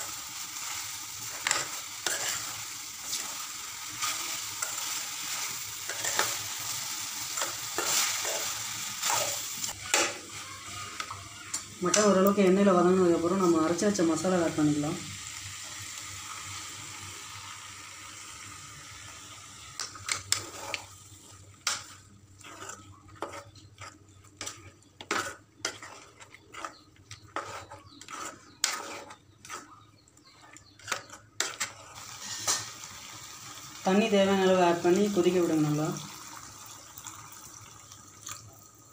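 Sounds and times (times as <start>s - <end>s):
frying sizzle: 0.0s - 25.9s, 31.4s - 38.9s
metal spoon clinking and scraping: 1.4s - 3.3s, 4.0s - 6.4s, 21.6s - 32.7s.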